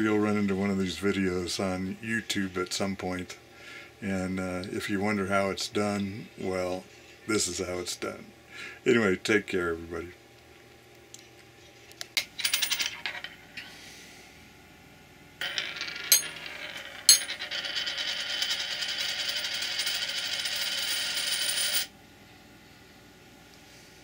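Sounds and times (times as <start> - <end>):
coin spinning on a tabletop: 12.3 - 13.4, 15.4 - 21.9.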